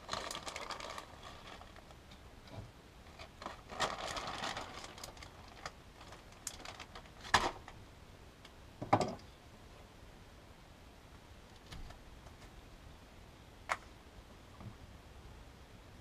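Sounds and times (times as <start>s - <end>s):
plastic bag crinkling: 0.0s - 2.1s, 3.1s - 7.8s.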